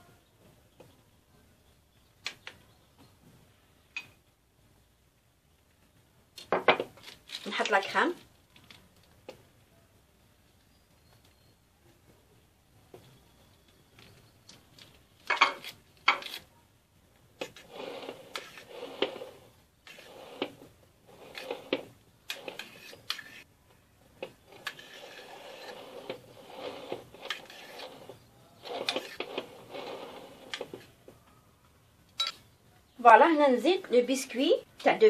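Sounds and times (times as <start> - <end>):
spoon scraping cream: 17.4 - 23.5, 24.2 - 30.9.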